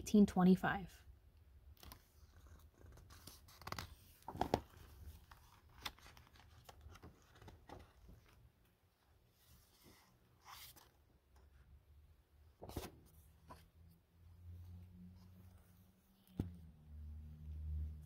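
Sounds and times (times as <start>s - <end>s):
book pages turned by hand: 1.7s - 11.7s, 12.6s - 13.9s.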